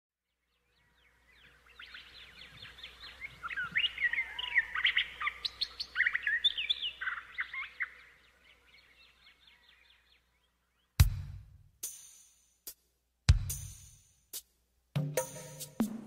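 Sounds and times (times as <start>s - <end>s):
birds chirping: 0.3s - 11.0s.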